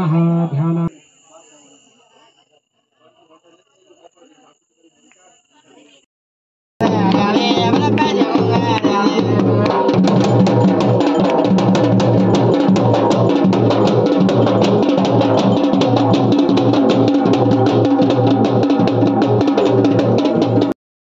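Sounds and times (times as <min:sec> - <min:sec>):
fast drum beat: 0:06.8 - 0:20.8.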